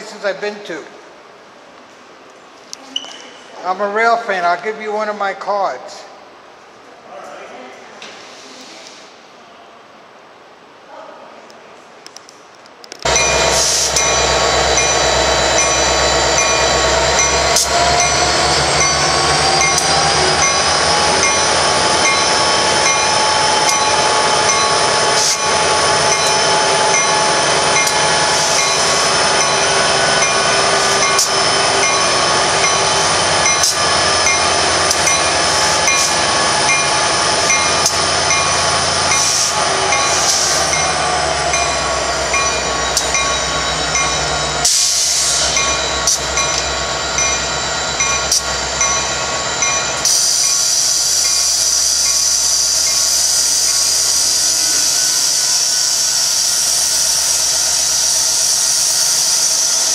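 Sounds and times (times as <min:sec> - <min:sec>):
diesel locomotives running: 0:13.0 - 0:59.9
sharp clicks: 0:33.5 - 0:36.1.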